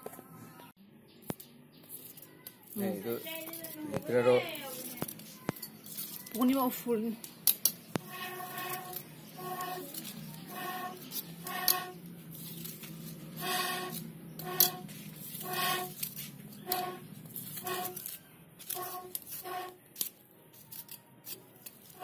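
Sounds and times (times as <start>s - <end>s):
knife scraping bamboo tube: 7.9s - 22.0s.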